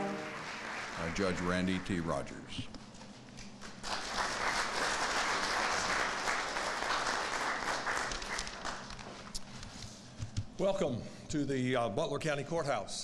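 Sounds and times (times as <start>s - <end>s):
audience clapping: 0.0s - 2.4s, 3.4s - 9.3s.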